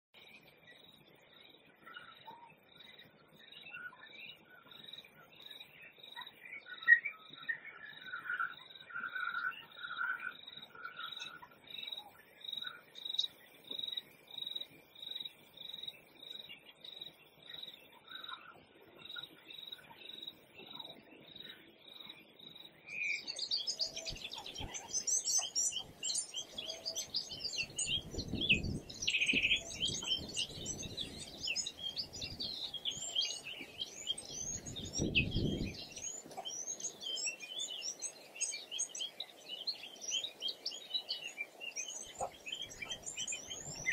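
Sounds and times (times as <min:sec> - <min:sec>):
birds chirping and whistling: 0:03.6 - 0:13.4, 0:22.9 - 0:43.9
high bird chirp: 0:22.9 - 0:43.9.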